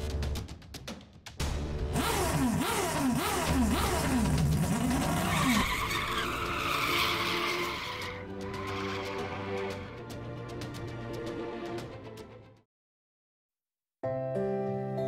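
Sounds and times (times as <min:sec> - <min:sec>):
car accelerating with squealing tyres: 0:02.6 - 0:10.0.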